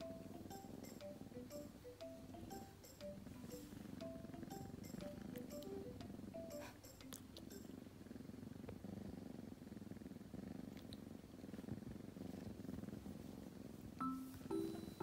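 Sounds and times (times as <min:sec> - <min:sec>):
mallet percussion music: 0:00.0 - 0:07.6
kitten purring: 0:00.0 - 0:15.0.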